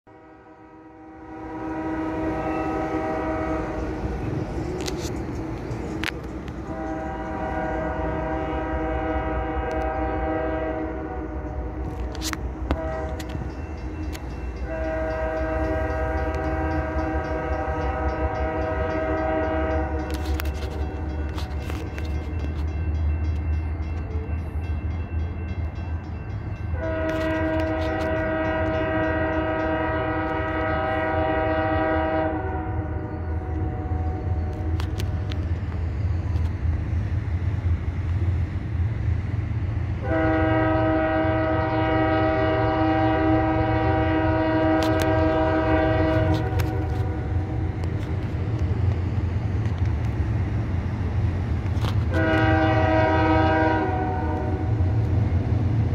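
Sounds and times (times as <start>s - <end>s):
locomotive air horn blasts: 0.1s - 4.0s, 6.6s - 13.6s, 14.6s - 22.6s, 26.7s - 35.1s, 40.0s - 48.4s, 51.7s - 54.9s.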